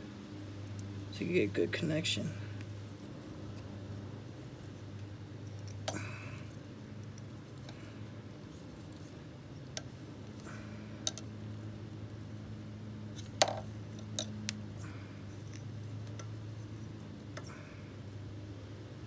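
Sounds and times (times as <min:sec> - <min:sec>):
steady low hum: 0:00.0 - 0:19.0
copper wire clicking: 0:11.0 - 0:11.3.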